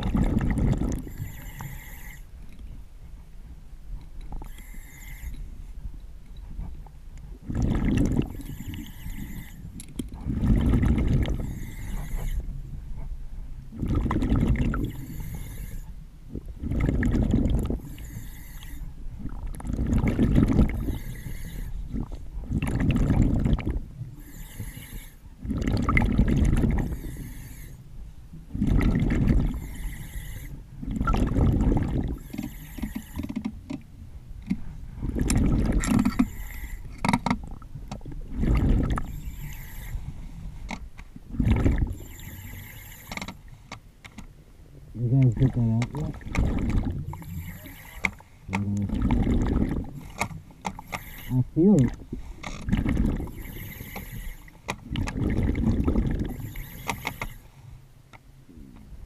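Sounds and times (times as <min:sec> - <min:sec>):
exhaled bubbles: 0:00.0 - 0:02.0, 0:07.4 - 0:09.6, 0:10.2 - 0:12.2, 0:13.7 - 0:15.6, 0:16.3 - 0:27.4, 0:28.5 - 0:33.2, 0:35.0 - 0:36.7, 0:37.4 - 0:40.0, 0:41.2 - 0:43.1, 0:45.0 - 0:50.2, 0:50.8 - 0:57.3
diver breathing through regulator: 0:00.1 - 0:02.4, 0:04.4 - 0:05.6, 0:07.4 - 0:13.1, 0:13.7 - 0:16.0, 0:16.6 - 0:19.0, 0:19.6 - 0:27.9, 0:28.5 - 0:33.5, 0:34.5 - 0:37.1, 0:38.3 - 0:40.7, 0:41.3 - 0:43.7, 0:46.2 - 0:57.8.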